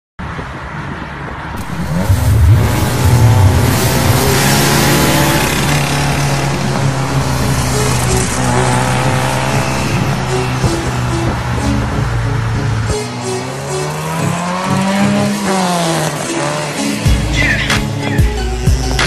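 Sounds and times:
steady low drone: 1.6 - 13.0
car engine revving hard: 1.6 - 17.1
music: 1.6 - 19.0.

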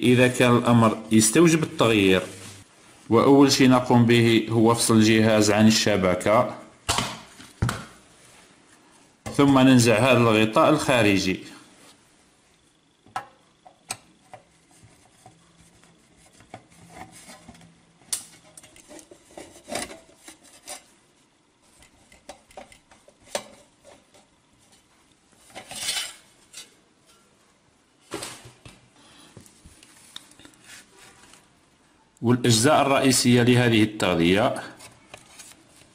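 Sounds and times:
metal cover scraping rattle: 18.4 - 20.9, 25.5 - 27.3.

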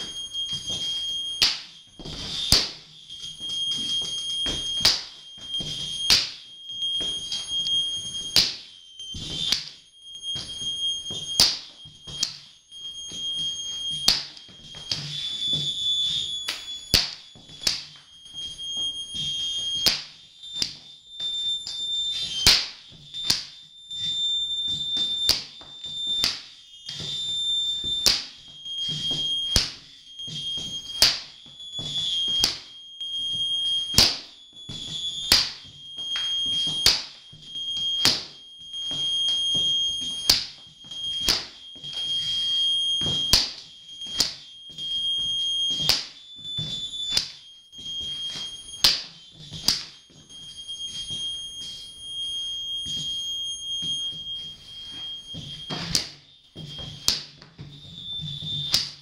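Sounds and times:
steady high-pitched tone: 0.0 - 59.0.

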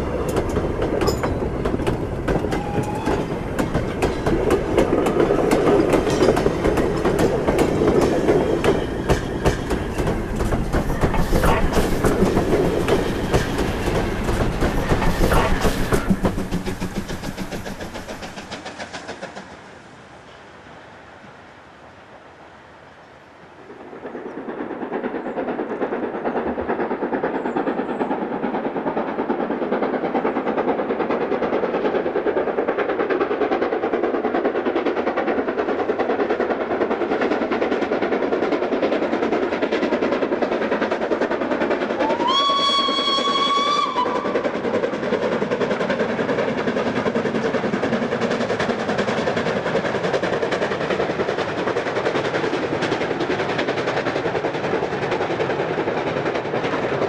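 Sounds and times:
steam locomotive running: 0.0 - 21.0, 23.4 - 57.0
steam whistle blowing: 2.5 - 3.3, 42.0 - 44.4.

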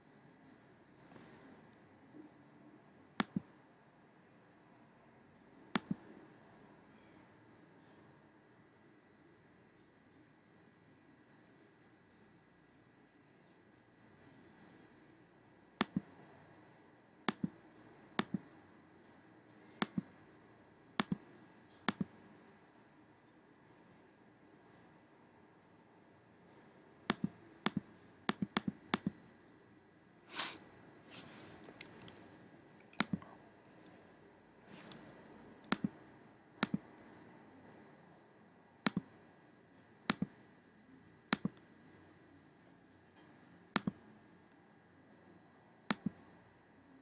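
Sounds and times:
computer mouse clicking: 3.2 - 3.5, 5.8 - 6.1, 15.8 - 16.1, 17.3 - 17.6, 18.2 - 18.4, 19.8 - 20.1, 21.0 - 22.2, 27.1 - 29.2, 31.7 - 32.3, 32.9 - 34.0, 34.8 - 36.0, 36.6 - 37.1, 38.8 - 39.1, 40.1 - 40.4, 41.3 - 41.6, 43.8 - 44.0, 45.9 - 46.2.

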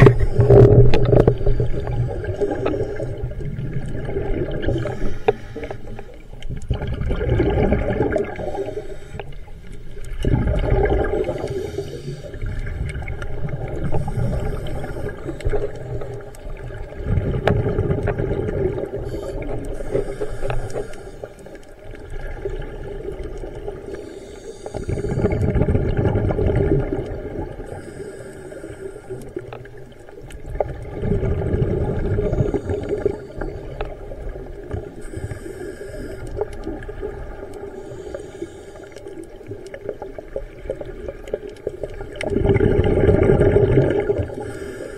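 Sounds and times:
exhaled bubbles gurgling underwater: 0.0 - 44.9
regulator inhalation hiss: 8.4 - 9.4, 11.3 - 12.4, 13.8 - 16.0, 19.0 - 21.6, 23.9 - 25.4, 27.7 - 29.4, 35.0 - 36.5, 37.8 - 39.2, 44.4 - 44.9.

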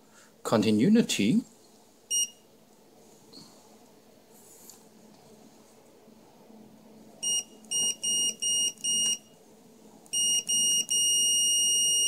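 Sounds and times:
multimeter beeps: 2.1 - 2.4, 7.2 - 9.4, 10.1 - 12.0.

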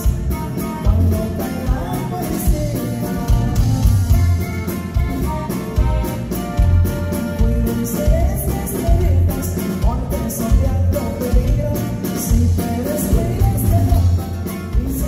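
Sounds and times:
person singing lead vocal: 0.0 - 3.9, 7.2 - 15.0
bass: 0.0 - 15.0
button accordion: 0.0 - 15.0
drum kit: 0.0 - 15.0
guitar: 0.0 - 15.0.

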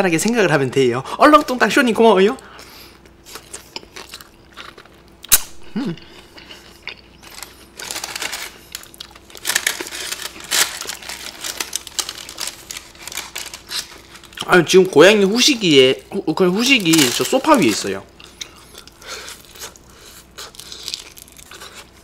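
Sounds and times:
fried chicken crackling and tearing: 7.1 - 15.8, 16.4 - 18.0, 18.7 - 22.0
wax paper rustling: 7.2 - 15.8, 16.4 - 18.0.

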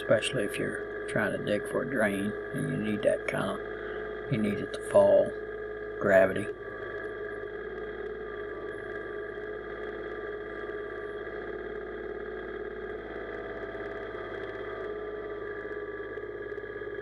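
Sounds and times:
tractor diesel engine running: 0.0 - 11.5.

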